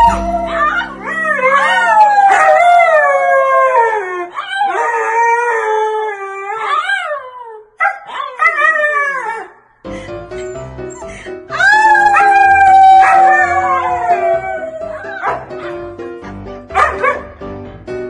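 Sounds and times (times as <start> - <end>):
dog howling: 0.0 - 7.6, 11.6 - 15.7.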